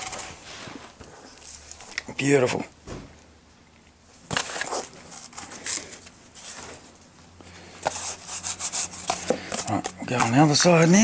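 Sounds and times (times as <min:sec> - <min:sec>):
cardboard scraping and rustling: 0:00.0 - 0:01.9, 0:04.3 - 0:07.0.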